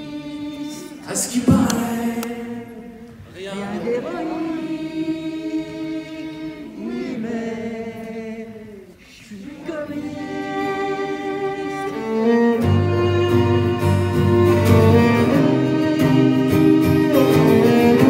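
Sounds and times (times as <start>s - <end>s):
bowed string instrument: 9.9s - 18.0s.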